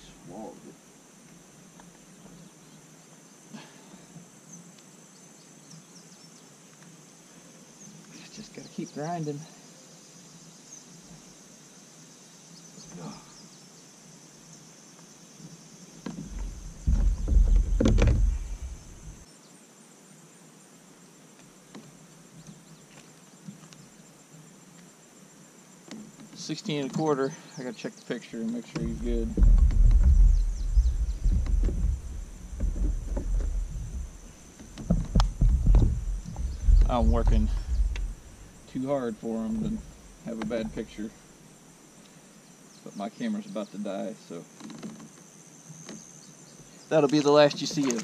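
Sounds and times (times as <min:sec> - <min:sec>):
insects chorus: 0:00.0 - 0:48.0
loud low rumble with knocks: 0:16.2 - 0:19.2, 0:28.8 - 0:38.7, 0:39.4 - 0:41.0.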